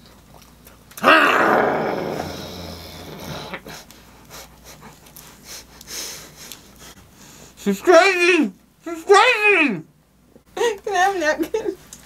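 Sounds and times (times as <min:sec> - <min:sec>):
heavy breathing: 0:02.3 - 0:07.6
people chewing: 0:03.2 - 0:07.0.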